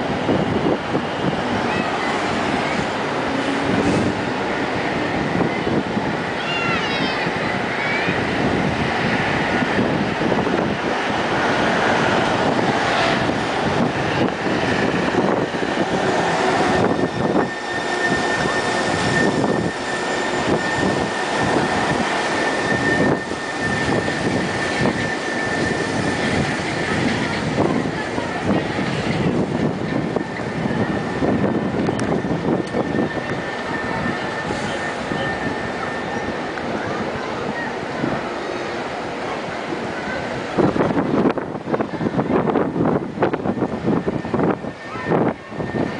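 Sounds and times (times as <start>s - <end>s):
train rumble and rush: 0.0s - 45.9s
high whine: 7.7s - 39.0s.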